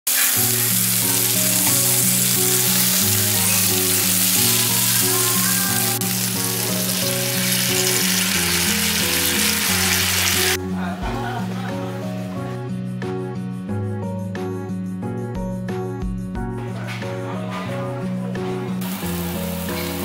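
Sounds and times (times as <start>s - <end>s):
meat sizzling on hot plate: 0.1s - 10.6s, 18.8s - 20.0s
background music: 0.1s - 20.0s.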